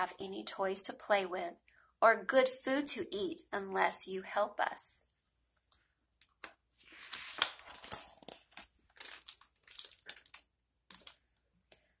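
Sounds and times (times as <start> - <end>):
paper page rustling: 6.3 - 11.2.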